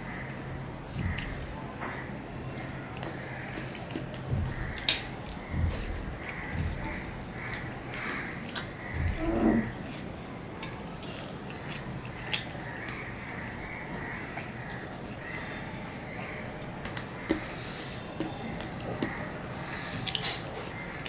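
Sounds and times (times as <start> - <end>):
rice mashed on steel plate: 0.9 - 9.2
soft chewing: 0.9 - 21.0.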